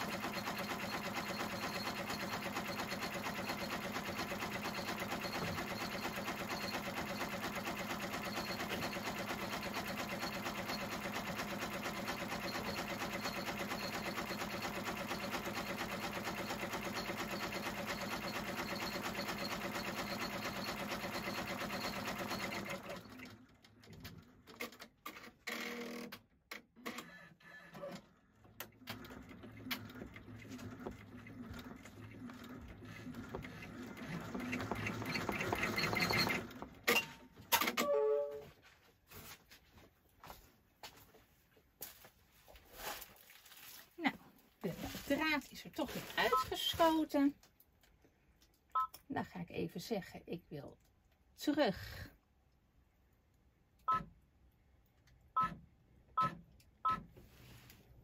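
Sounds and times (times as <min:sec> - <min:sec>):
embroidery machine stitching: 0:00.0 - 0:26.2, 0:28.6 - 0:37.0.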